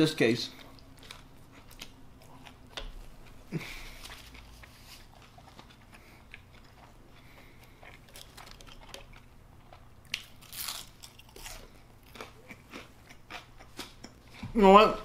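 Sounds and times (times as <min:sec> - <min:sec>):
crunchy bite and chewing: 0:03.6 - 0:14.1.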